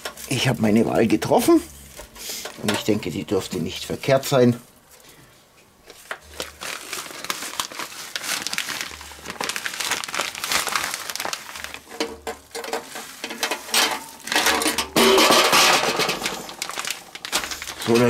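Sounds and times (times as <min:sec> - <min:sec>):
plastic bag crinkling: 0:05.8 - 0:18.0.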